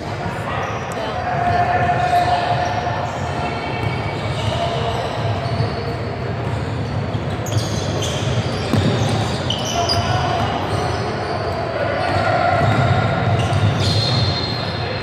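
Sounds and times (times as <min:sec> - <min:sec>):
sneakers squeaking: 0:00.5 - 0:15.0
basketball bouncing on hardwood floor: 0:08.7 - 0:09.2.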